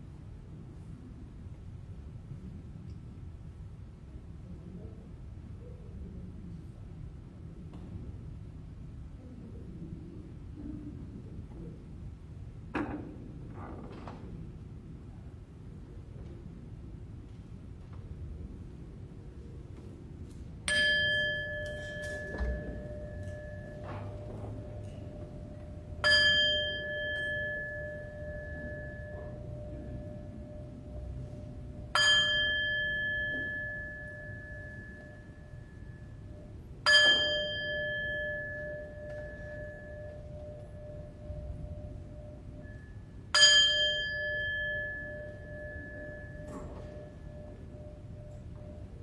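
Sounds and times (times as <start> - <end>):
bell ringing: 20.7 - 49.0.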